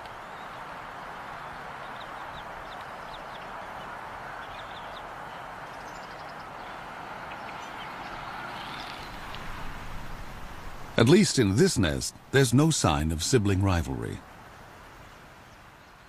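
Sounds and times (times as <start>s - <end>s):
steady rushing noise: 8.2s - 14.2s.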